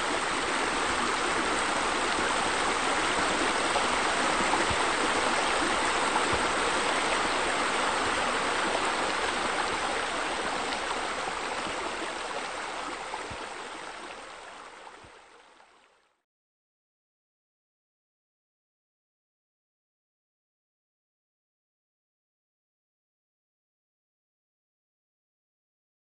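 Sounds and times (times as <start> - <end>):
flowing water rushing: 0.0 - 16.1.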